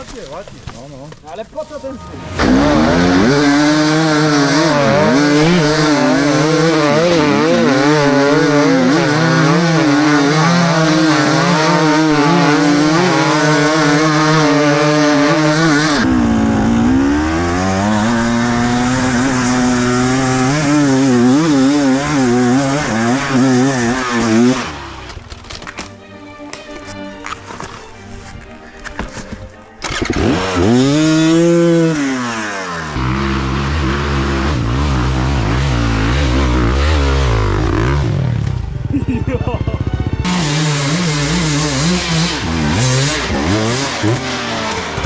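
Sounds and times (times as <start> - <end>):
dirt bike engine revving: 2.0 - 25.2, 29.8 - 45.0.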